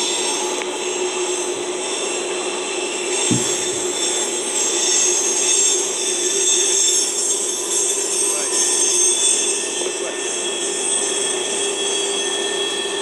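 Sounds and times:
thump: 3.3 - 3.9
train cars rumbling on rails: 3.3 - 12.8.

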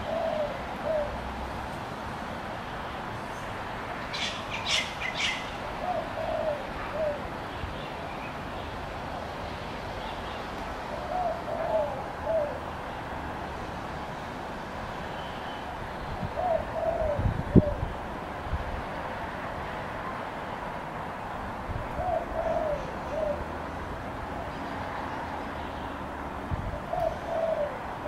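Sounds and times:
bird calling: 4.1 - 7.2.

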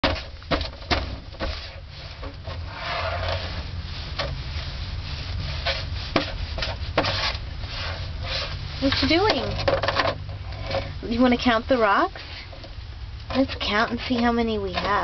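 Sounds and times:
rocks scraping on plastic table: 0.0 - 4.4, 5.6 - 10.9
low steady rumble: 0.0 - 15.0.

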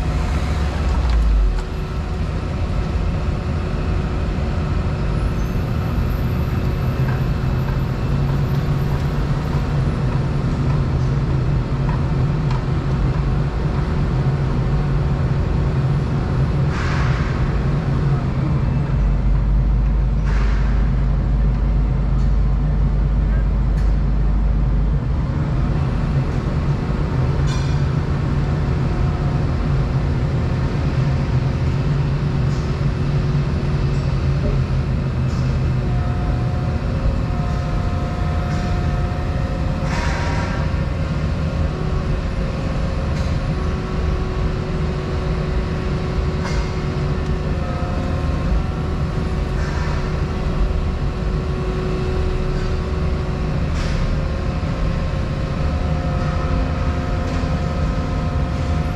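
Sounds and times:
hydraulic whine: 0.0 - 11.8, 25.4 - 58.9
excavator diesel engine drone: 0.0 - 58.9.

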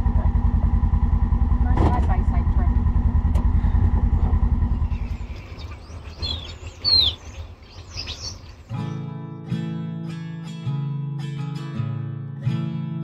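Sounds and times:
utility vehicle engine pulsing: 0.0 - 9.0
birds chirping: 3.5 - 9.0.

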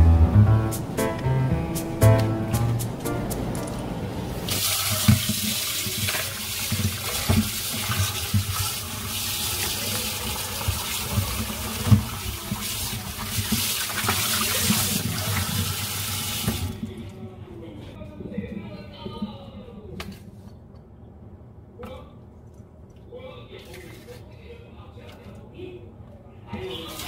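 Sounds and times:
tap water running into bowl: 4.5 - 16.9.

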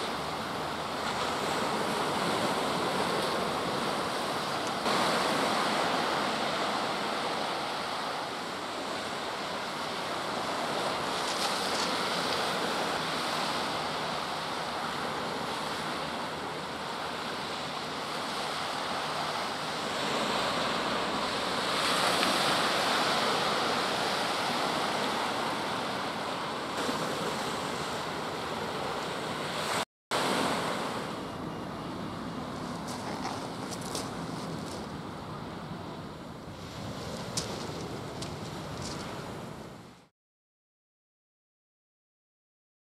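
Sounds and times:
waves on shingle beach: 0.0 - 40.0
wind buffeting microphone: 17.6 - 40.0.

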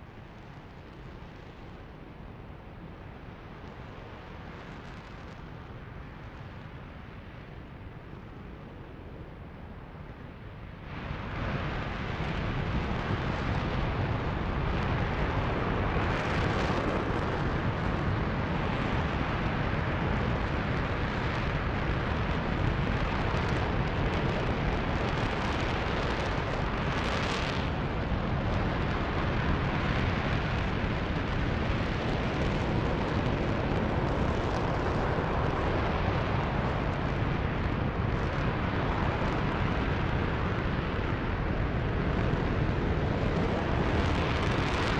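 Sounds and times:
rocket engine roaring: 11.7 - 44.9.

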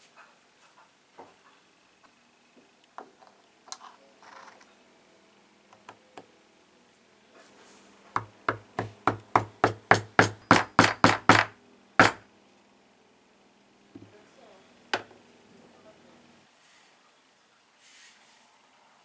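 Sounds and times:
hammer tapping on metal: 8.2 - 12.2.

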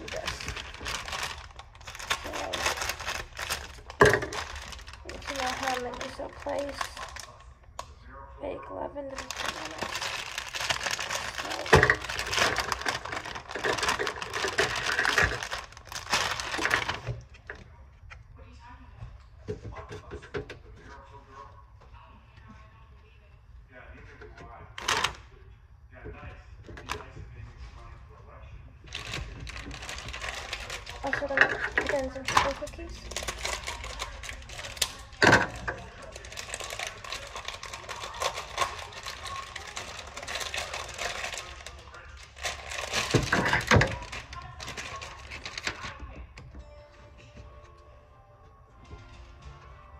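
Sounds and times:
kitchen items clicking and rustling: 0.0 - 7.4, 9.1 - 17.6, 28.9 - 46.6.

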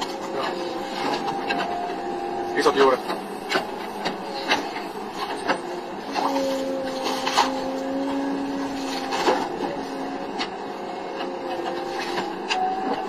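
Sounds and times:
machine hum with whine: 0.0 - 13.0
wood crunching and splitting: 2.8 - 10.5.

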